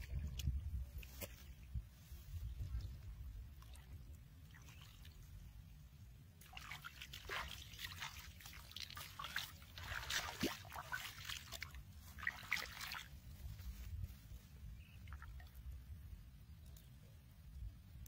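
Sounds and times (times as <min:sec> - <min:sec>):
muddy water splashing: 0:00.0 - 0:01.7, 0:02.3 - 0:05.8, 0:06.4 - 0:14.0.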